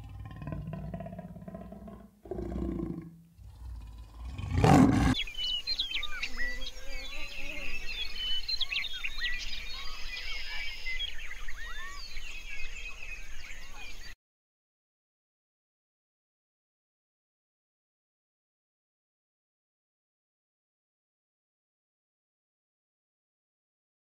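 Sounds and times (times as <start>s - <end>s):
leopard growling: 0.0s - 5.2s
leopard roar: 0.0s - 5.2s
chorus of chirping calls: 3.4s - 14.2s.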